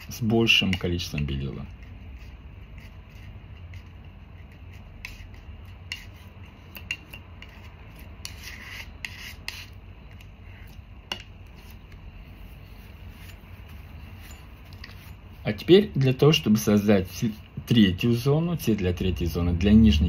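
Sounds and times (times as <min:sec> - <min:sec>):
palette knife scraping: 0:00.0 - 0:16.9
low steady hum: 0:00.0 - 0:20.0.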